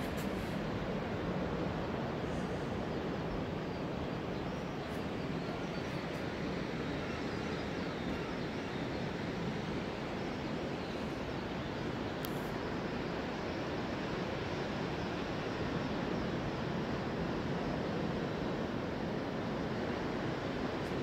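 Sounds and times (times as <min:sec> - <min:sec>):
steady rushing outdoor noise: 0:00.0 - 0:21.0.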